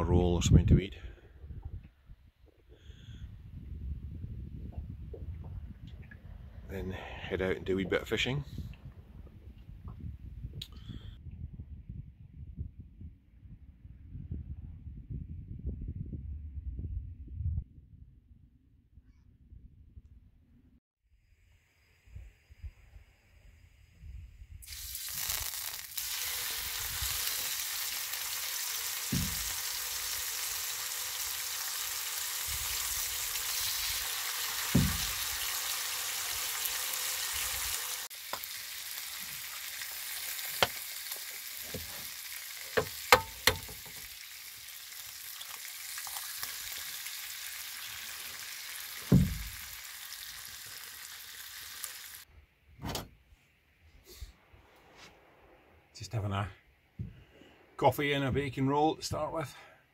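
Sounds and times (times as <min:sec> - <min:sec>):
bacon sizzling: 0:24.6 - 0:52.3.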